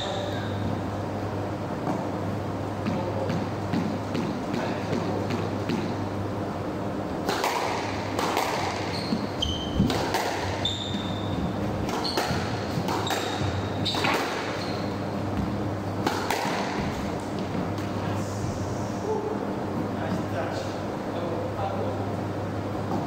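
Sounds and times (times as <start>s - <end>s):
squash ball cracking off rackets: 7.2s - 10.6s, 11.8s - 14.6s, 16.0s - 17.9s
shoes squeaking on wooden floor: 8.7s - 15.6s.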